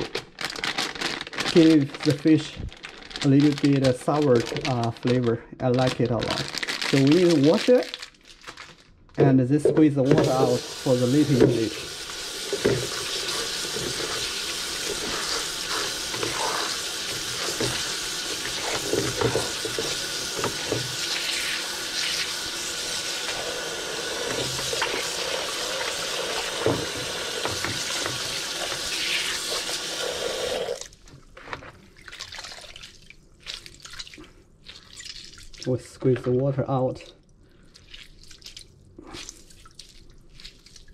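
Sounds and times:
faucet running into colander: 0:10.0 - 0:30.9
wet cabbage squeezed by hand: 0:10.1 - 0:29.8, 0:32.0 - 0:35.7, 0:37.6 - 0:40.9
cabbage rubbed by hand: 0:12.8 - 0:20.1.

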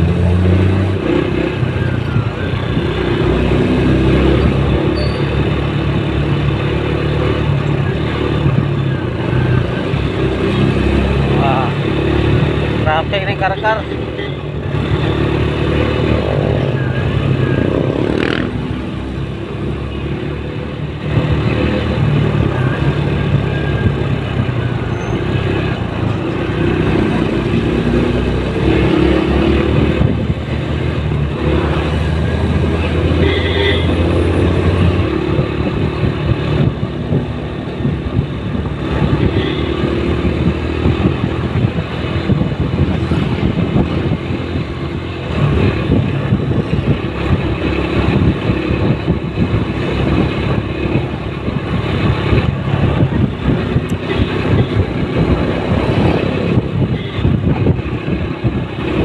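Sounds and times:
passing traffic: 0:00.0 - 0:59.0
road noise: 0:00.0 - 0:59.0
motorcycle engine running: 0:14.2 - 0:24.9
wind noise: 0:14.5 - 0:20.1, 0:20.7 - 0:59.0.

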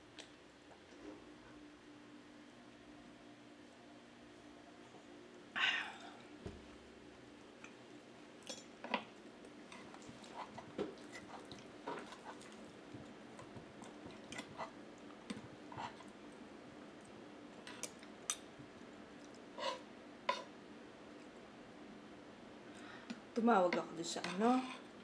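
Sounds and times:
faint steady hum: 0:00.0 - 0:25.0
quiet chewing: 0:09.0 - 0:19.8
cutlery scraping wooden plate: 0:19.6 - 0:20.5.

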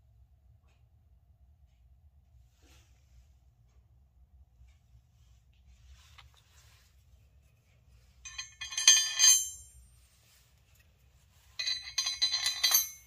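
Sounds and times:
screws rattling against metal: 0:08.2 - 0:09.7, 0:11.5 - 0:13.0.

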